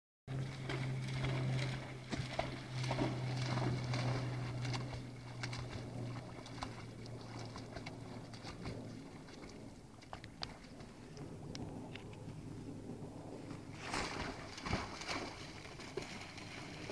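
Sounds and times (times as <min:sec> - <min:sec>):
dog splashing in water: 0:00.3 - 0:10.8, 0:13.7 - 0:16.9
steady low hum: 0:00.3 - 0:16.9.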